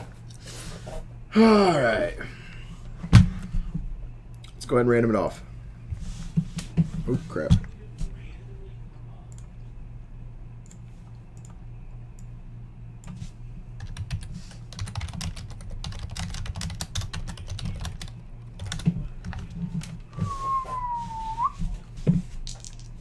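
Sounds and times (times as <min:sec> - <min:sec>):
computer keyboard typing: 0:13.8 - 0:20.0
short whistle: 0:20.2 - 0:21.6.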